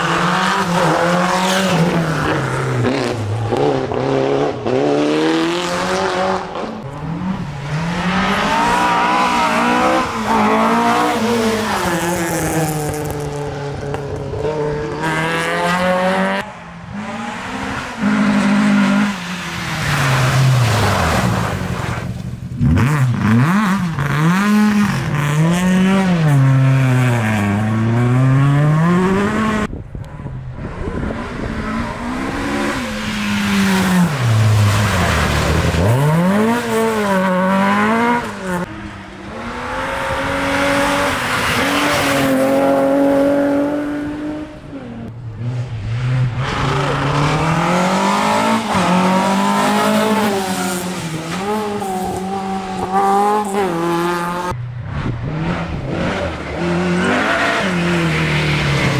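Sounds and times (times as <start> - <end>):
rally car engines revving: 0.0 - 58.9.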